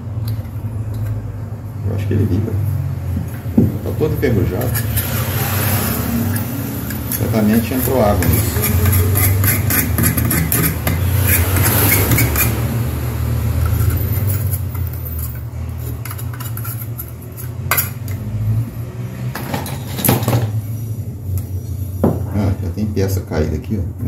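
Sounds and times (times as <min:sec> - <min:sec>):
knife scraping rusted metal: 0:04.5 - 0:12.8, 0:13.6 - 0:18.2.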